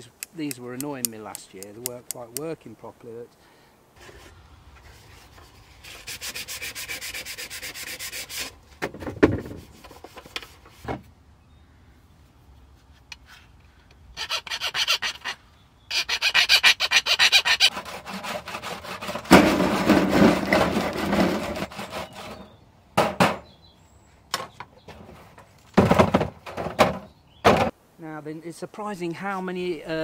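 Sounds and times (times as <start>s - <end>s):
hand tool rasping: 14.2s - 15.3s, 15.9s - 19.3s.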